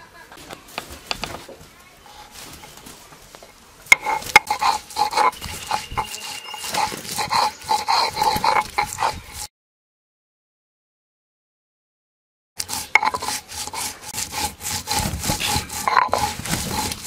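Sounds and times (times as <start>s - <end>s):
stone grinding over stone: 3.9s - 9.5s, 12.6s - 17.0s.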